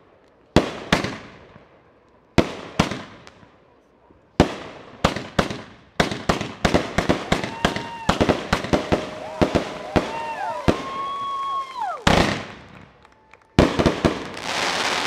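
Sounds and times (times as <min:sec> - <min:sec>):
fireworks bangs and crackle: 0:00.0 - 0:03.6, 0:04.3 - 0:15.0
rising firework whistle: 0:07.1 - 0:12.4.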